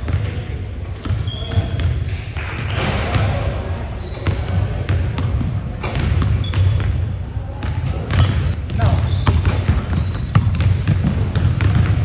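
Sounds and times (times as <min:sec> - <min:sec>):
basketballs bouncing on wooden floor: 0:04.2 - 0:12.0.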